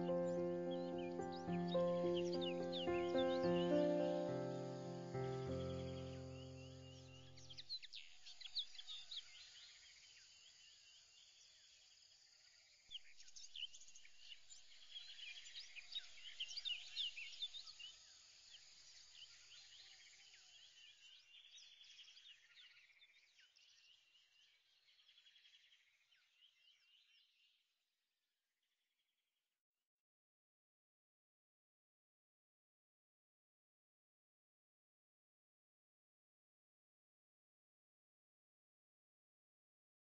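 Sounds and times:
birds chirping: 0.0s - 9.2s.

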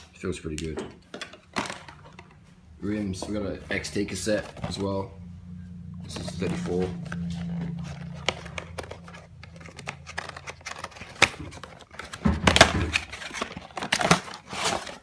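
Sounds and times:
cardboard and paper crinkling: 2.9s - 5.1s, 6.0s - 15.0s.

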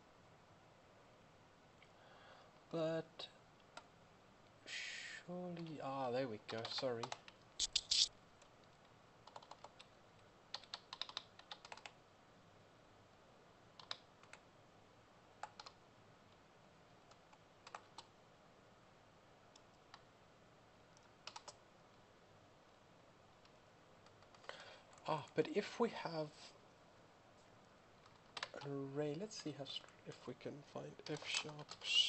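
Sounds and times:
computer keyboard typing: 6.4s - 8.5s, 9.2s - 12.0s, 13.8s - 14.4s, 15.4s - 15.8s, 17.0s - 18.1s, 20.9s - 21.6s, 23.4s - 25.1s, 28.0s - 28.8s, 31.0s - 31.9s.

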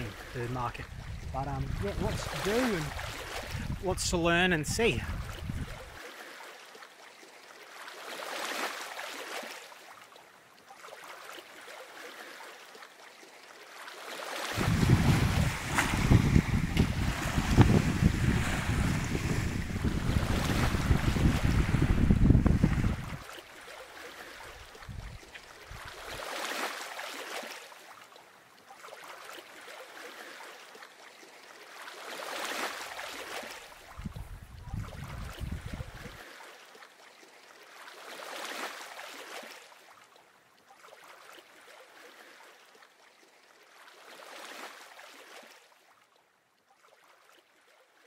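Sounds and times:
wind buffeting microphone: 0.8s - 6.0s, 14.6s - 23.3s, 24.6s - 26.2s, 33.9s - 36.2s.

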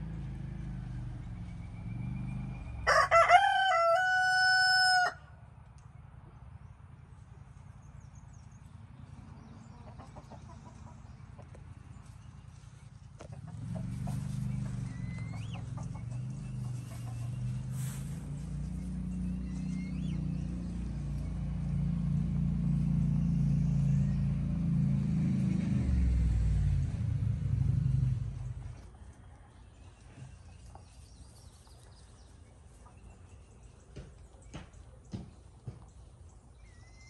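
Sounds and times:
bird chirping: 1.0s - 2.9s, 5.8s - 24.6s, 28.4s - 37.0s
motor engine humming: 11.4s - 31.0s
rabbits rustling in hay: 12.0s - 19.7s.

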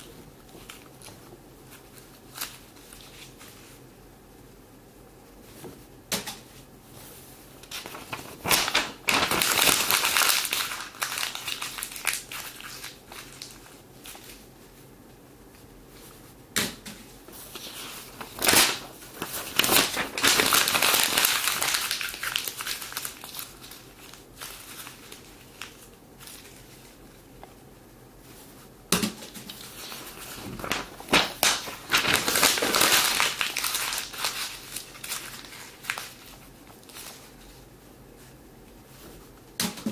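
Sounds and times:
paper being crumpled: 0.5s - 3.8s, 7.6s - 14.6s, 17.3s - 27.1s, 29.3s - 37.6s.

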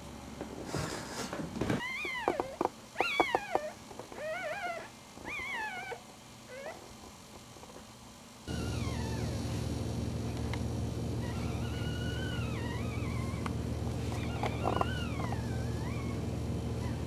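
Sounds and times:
puppy whining squeals: 1.8s - 6.8s, 8.5s - 9.4s, 11.2s - 17.0s.

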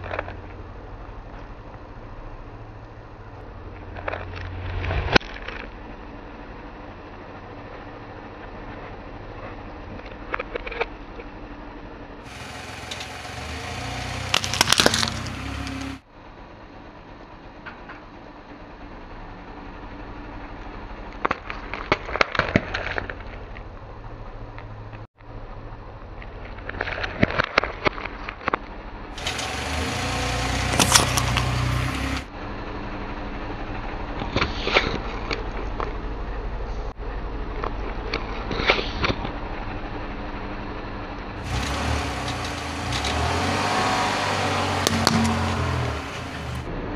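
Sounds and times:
car engine hum: 0.0s - 26.4s, 28.7s - 46.9s
sharp clicks and cracks: 14.3s - 15.8s, 21.1s - 23.7s
tyre crushing plastic cup: 14.3s - 15.8s
fruit cracking and popping: 14.3s - 15.9s.

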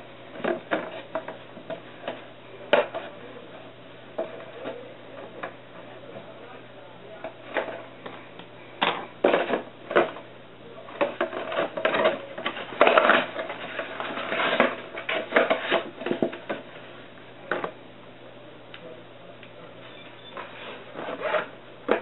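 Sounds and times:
scraping and rustling: 10.9s - 17.1s, 19.8s - 22.0s.

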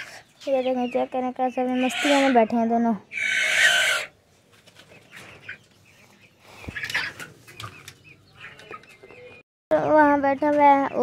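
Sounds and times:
chickens clucking: 0.0s - 11.0s
chicken squawk: 1.6s - 2.5s, 3.1s - 4.2s.

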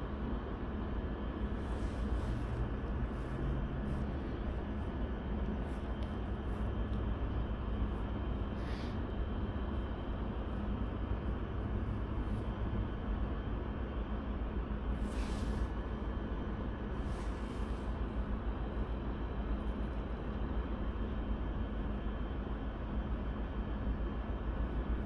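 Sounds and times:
low motor drone: 0.0s - 19.3s
constant rush of noise: 0.0s - 25.0s.

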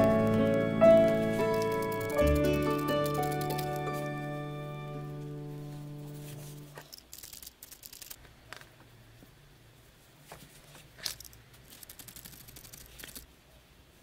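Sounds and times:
sharp tool clicks: 1.5s - 3.8s.

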